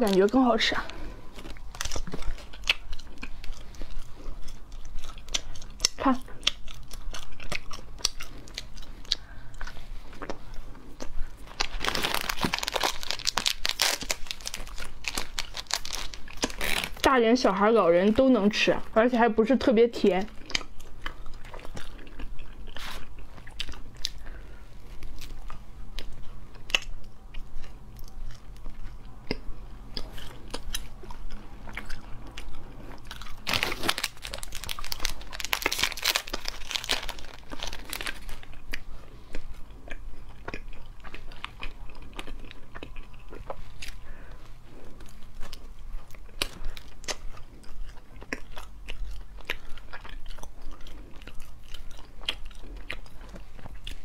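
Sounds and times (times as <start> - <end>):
plastic wrapper crinkling: 0.0 - 3.6, 11.5 - 17.2, 33.2 - 38.5
crunching and chewing: 0.0 - 17.1, 20.2 - 54.0.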